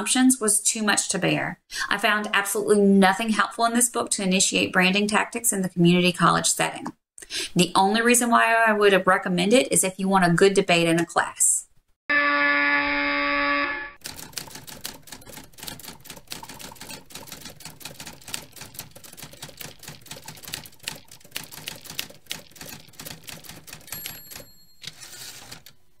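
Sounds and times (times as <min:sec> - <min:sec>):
loud steady electronic tone: 0:12.1 - 0:14.0.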